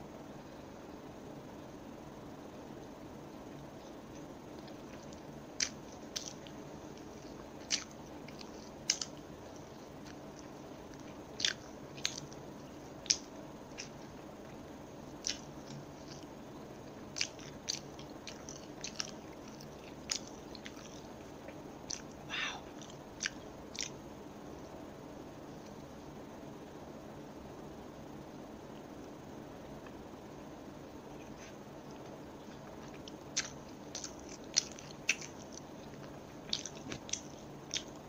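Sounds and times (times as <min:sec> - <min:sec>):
faint steady hiss: 0:00.0 - 0:38.0
crunchy sandwich chewing: 0:03.5 - 0:24.7, 0:31.1 - 0:38.0.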